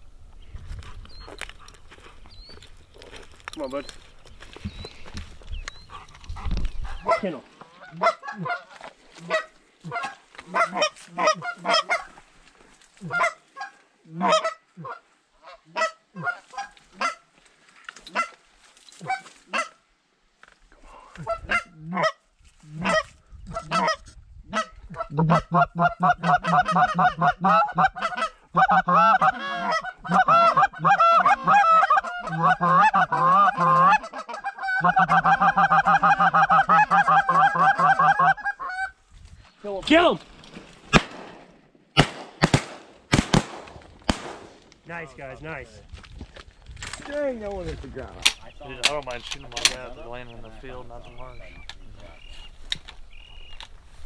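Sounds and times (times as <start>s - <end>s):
goose honks and clucks: 5.9s - 12.2s, 13.0s - 17.3s, 18.1s - 18.4s, 19.0s - 19.8s, 21.2s - 39.0s.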